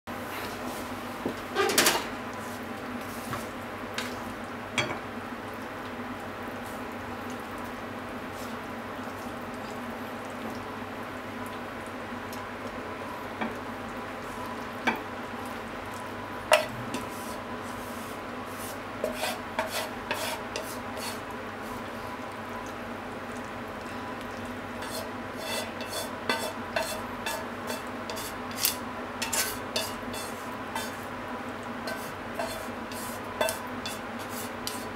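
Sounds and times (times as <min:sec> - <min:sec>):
chopsticks scraping metal pan: 0:19.0 - 0:21.2, 0:24.8 - 0:31.0, 0:31.9 - 0:34.9.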